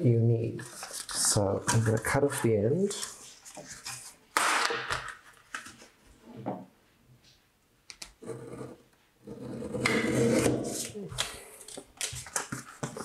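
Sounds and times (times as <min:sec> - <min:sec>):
paper rustling and tapping: 0:10.8 - 0:13.0.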